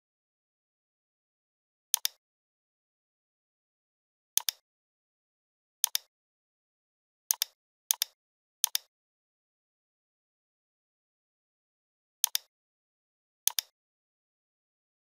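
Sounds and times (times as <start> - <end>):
computer mouse clicks: 1.9 - 2.2, 4.4 - 4.6, 5.8 - 6.1, 7.3 - 8.9, 12.2 - 12.5, 13.5 - 13.8.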